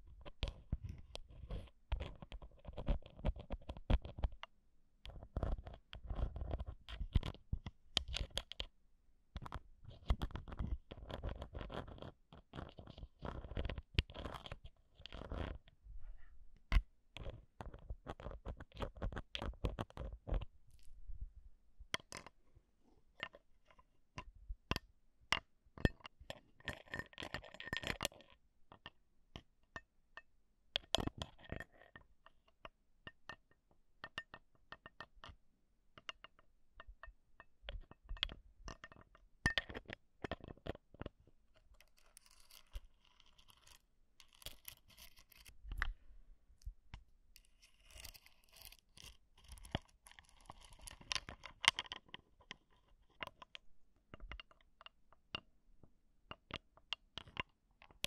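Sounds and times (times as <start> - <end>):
scraping on microphone: 15.1 - 16.5.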